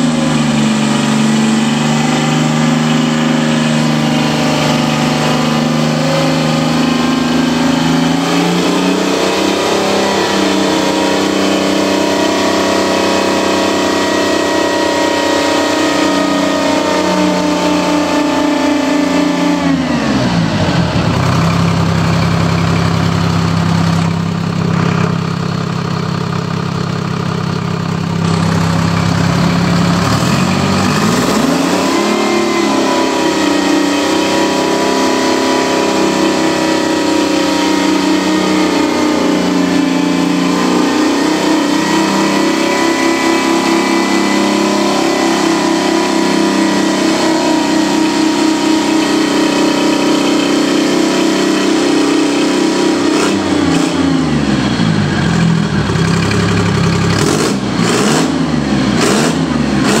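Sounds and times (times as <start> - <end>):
diesel engine revving: 0.0 - 60.0.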